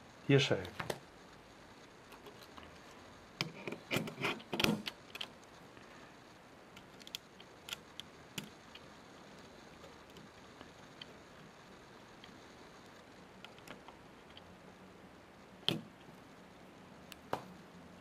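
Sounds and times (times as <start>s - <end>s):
small clicks and knocks: 3.4s - 5.5s, 6.8s - 8.9s.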